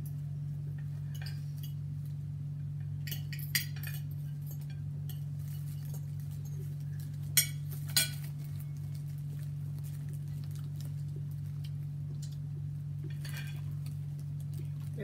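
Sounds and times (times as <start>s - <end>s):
steady low hum: 0.0s - 15.0s
cutlery and containers clinking: 3.1s - 9.0s, 13.0s - 13.9s.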